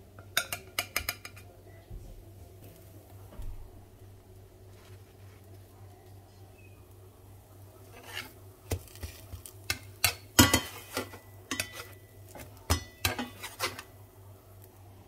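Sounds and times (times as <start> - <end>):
spatula scraping frying pan: 7.8 - 14.0.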